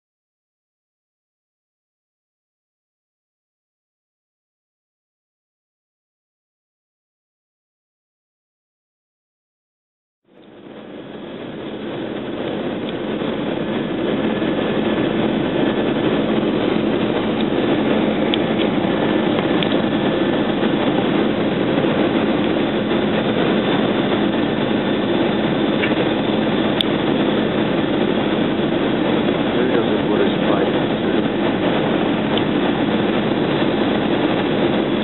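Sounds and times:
airplane cabin engine drone: 10.3 - 35.0.

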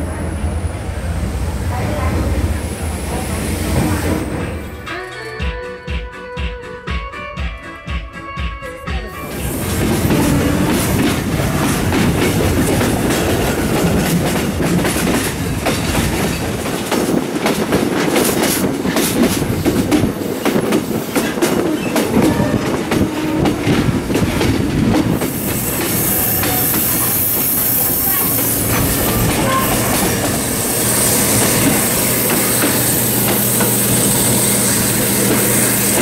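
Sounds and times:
train wheels rumbling on rails: 0.0 - 4.9, 9.1 - 36.0
bright hiss: 30.2 - 36.0.

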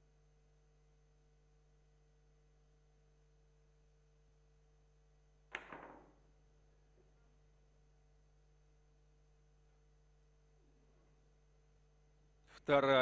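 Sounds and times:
faint steady hum: 0.0 - 13.0
cue striking billiard ball: 5.6 - 6.2.

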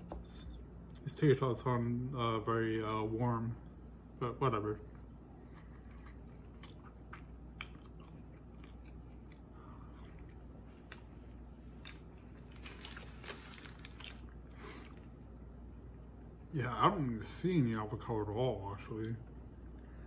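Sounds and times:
person chewing crunchy food: 4.8 - 15.1.

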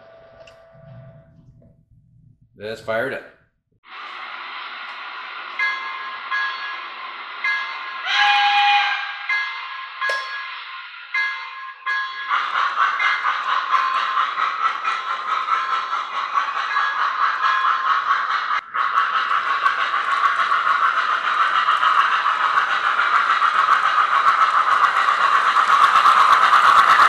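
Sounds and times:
model train wheels rattling on rails: 11.2 - 27.0.

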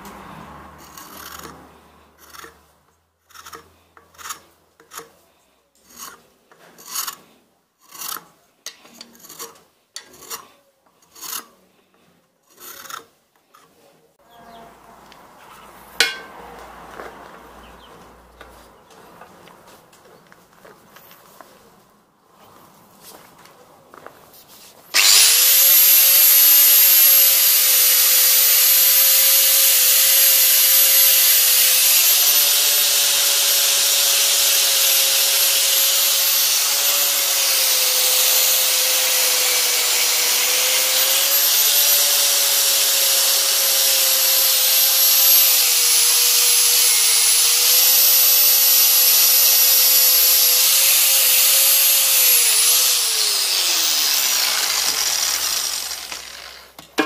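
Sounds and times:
angle grinder grinding steel: 0.0 - 2.7, 3.3 - 5.2, 5.8 - 11.6, 16.0 - 16.4, 24.9 - 56.8.

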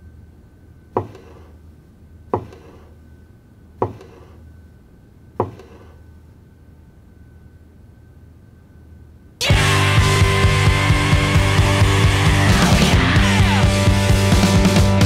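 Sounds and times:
faint steady hum: 0.0 - 14.4
sharp ringing knocks: 5.4 - 5.9.

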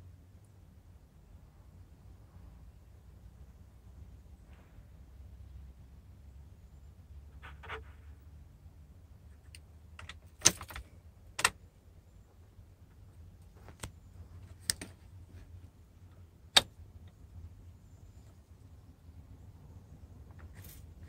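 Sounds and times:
ignition switch clicks: 9.5 - 10.8, 11.4 - 11.6, 16.5 - 16.8.

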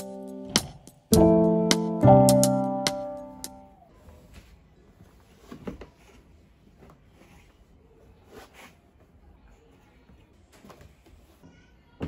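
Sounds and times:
light ticking beat: 0.0 - 3.6
keyboard chords: 0.0 - 3.8.

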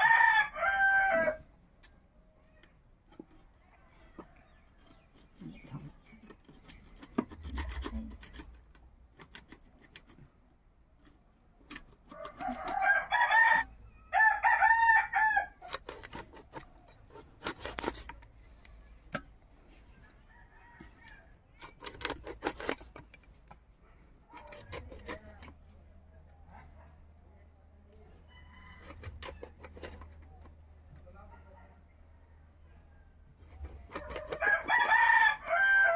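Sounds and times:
rooster crowing: 0.0 - 1.5, 12.1 - 15.7, 20.2 - 21.4, 28.3 - 29.4, 34.0 - 35.9
blade scraping and knocking: 3.0 - 13.8, 15.5 - 26.8, 27.9 - 31.3, 33.3 - 35.9.

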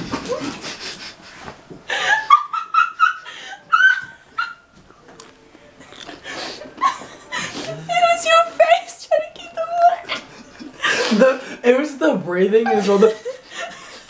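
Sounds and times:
young people laughing: 1.9 - 4.6, 6.6 - 8.0, 9.8 - 11.5, 12.6 - 14.0.

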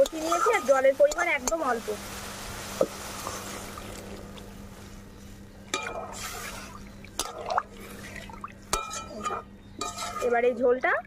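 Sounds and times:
water hissing in hot pan: 0.0 - 4.8.

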